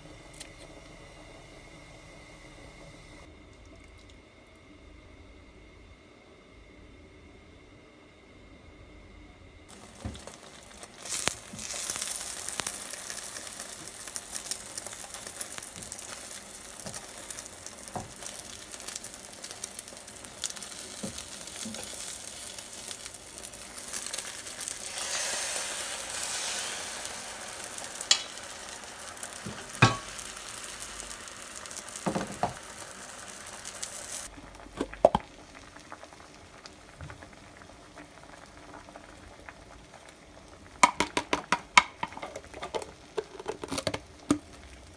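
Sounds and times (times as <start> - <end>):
egg sizzling in a frying pan: 9.7 - 44.9.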